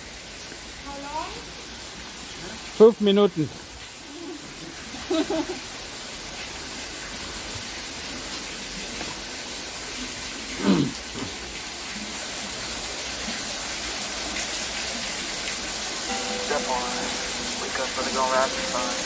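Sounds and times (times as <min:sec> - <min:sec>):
stream water rushing: 0:08.6 - 0:19.0
person speaking: 0:16.1 - 0:19.0.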